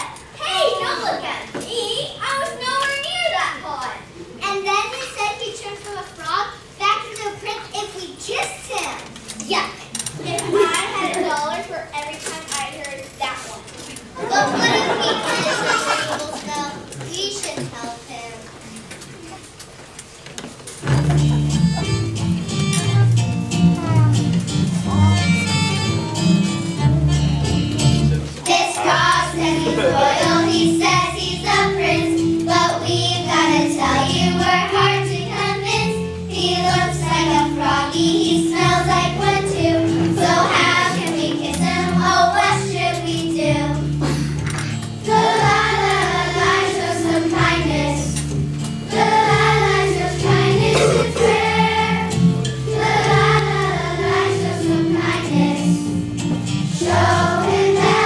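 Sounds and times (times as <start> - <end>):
instrumental accompaniment with bass: 20.8 - 58.0
girls singing in unison: 28.5 - 43.8, 45.1 - 48.2, 48.9 - 55.9, 56.7 - 58.0.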